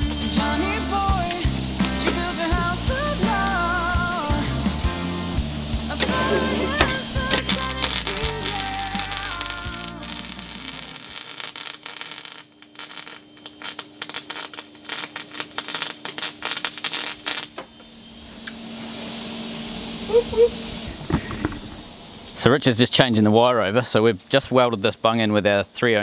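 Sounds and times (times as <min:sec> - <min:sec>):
faint hiss: 0:00.0 - 0:17.6
welding arc crackling: 0:00.0 - 0:17.7.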